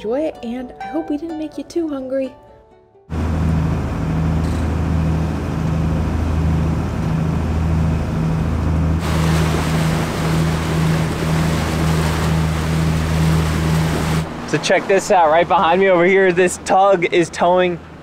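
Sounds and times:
boat engine droning: 0:03.1 - 0:18.0
wind: 0:03.1 - 0:18.0
water rushing: 0:09.0 - 0:18.0.

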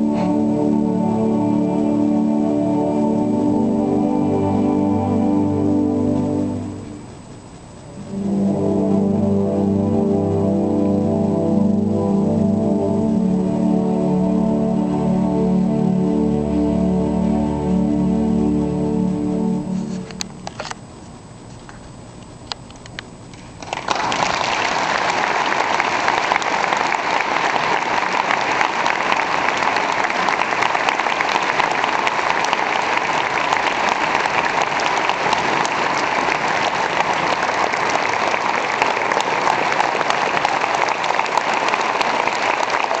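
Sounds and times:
audience applause: 0:23.6 - 0:43.0.

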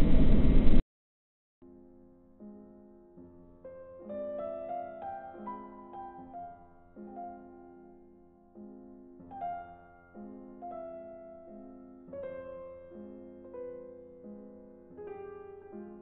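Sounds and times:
slow piano music: 0:01.6 - 0:16.0.

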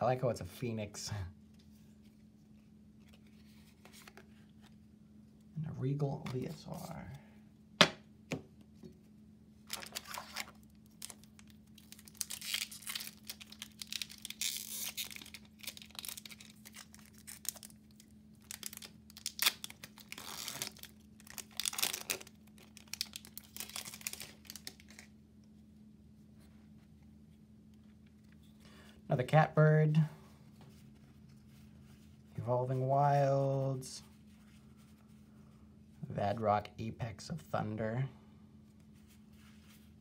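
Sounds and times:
foil wrapper crinkling and tearing: 0:09.6 - 0:25.1.

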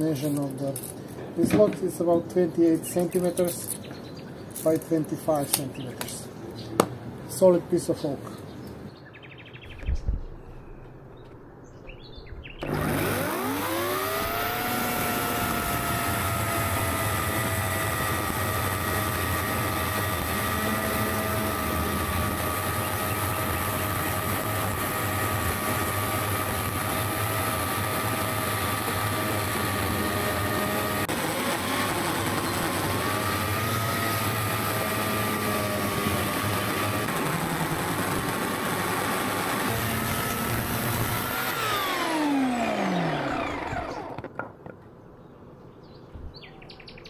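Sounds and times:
electric chainsaw sawing log: 0:12.6 - 0:44.4.

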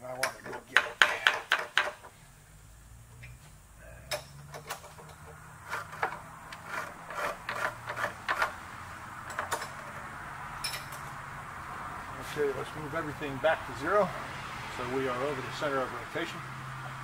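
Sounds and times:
metal clicks and scrapes: 0:04.1 - 0:08.6.

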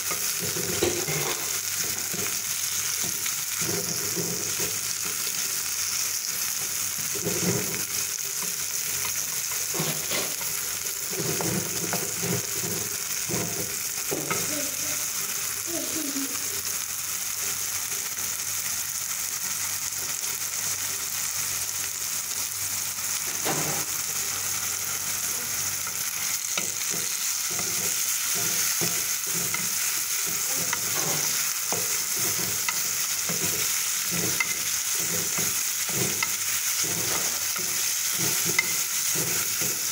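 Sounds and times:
vegetables sizzling in oil: 0:00.0 - 0:39.9
wooden spatula scraping pan: 0:03.5 - 0:05.3, 0:06.5 - 0:14.5, 0:26.2 - 0:39.9.

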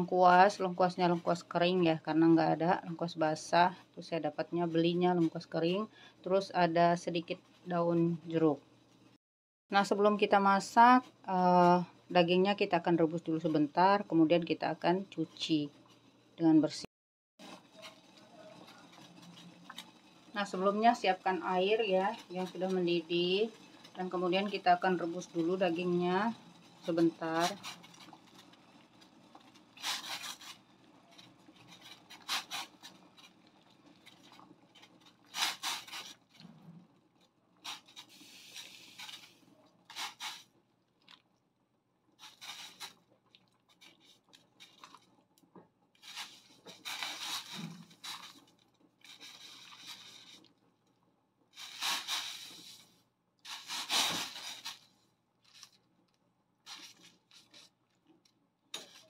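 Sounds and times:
boiling water bubbling and sputtering: 0:00.0 - 0:09.2, 0:17.4 - 0:53.1.

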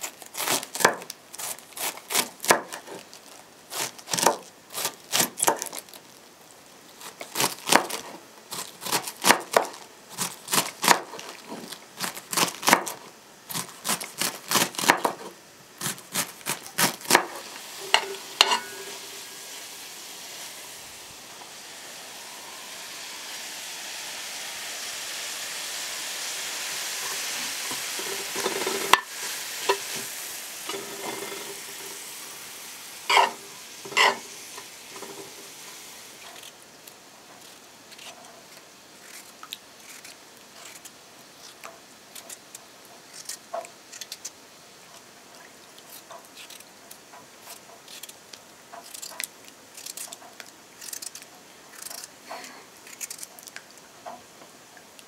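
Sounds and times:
vegetables sizzling in a pan: 0:07.0 - 0:36.7.

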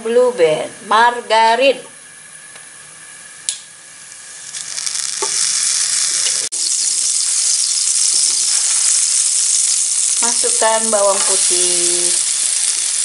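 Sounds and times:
margarine sizzling in a hot pan: 0:03.5 - 0:13.0.

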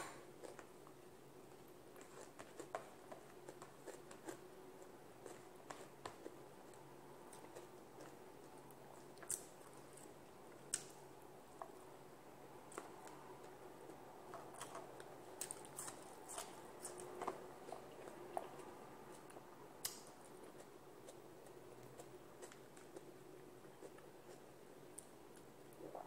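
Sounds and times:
quiet chewing: 0:00.0 - 0:12.0, 0:12.7 - 0:26.0
low steady hum: 0:00.0 - 0:26.0
fingers mixing food on a plate: 0:00.3 - 0:12.0.

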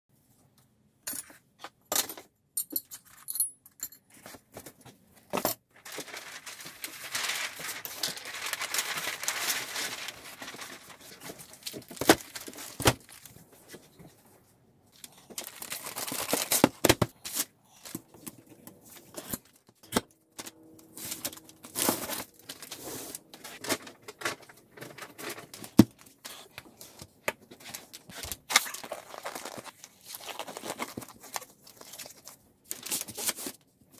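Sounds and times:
plastic wrap crinkling and tearing: 0:05.8 - 0:13.4, 0:15.0 - 0:19.7, 0:20.4 - 0:26.5, 0:27.6 - 0:33.6.

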